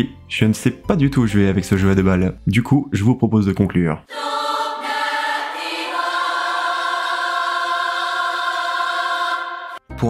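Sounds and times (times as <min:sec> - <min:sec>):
choir holding a chord: 0:04.1 - 0:09.9.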